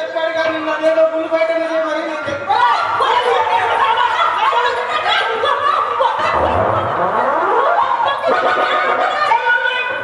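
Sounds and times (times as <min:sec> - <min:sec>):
excited voices: 0:02.5 - 0:10.0
people laughing: 0:03.2 - 0:09.6
loud rising and falling cries: 0:06.3 - 0:09.2.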